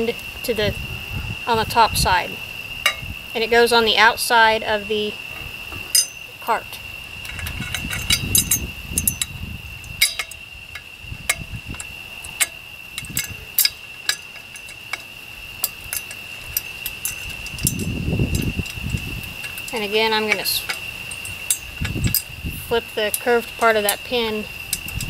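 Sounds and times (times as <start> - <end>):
high insect drone: 0.0 - 25.0
low handling rumbles: 0.0 - 25.0
metal bars clicking and clinking: 2.8 - 3.0, 5.9 - 6.5, 7.2 - 25.0.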